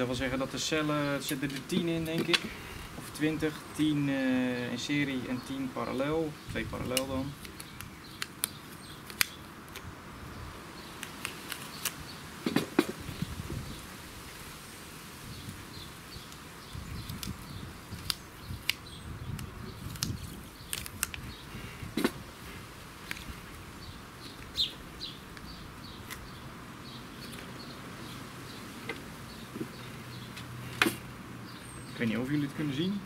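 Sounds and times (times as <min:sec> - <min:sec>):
birds chirping: 0:00.0 - 0:13.9, 0:15.2 - 0:33.0
wind rumbling on microphone: 0:06.4 - 0:07.9, 0:09.8 - 0:10.6, 0:12.0 - 0:28.6
plastic wrapping handled: 0:19.8 - 0:22.2.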